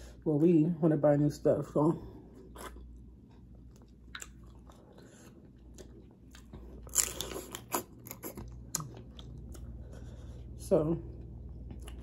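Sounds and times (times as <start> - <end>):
person chewing: 2.3 - 10.5, 11.4 - 12.0.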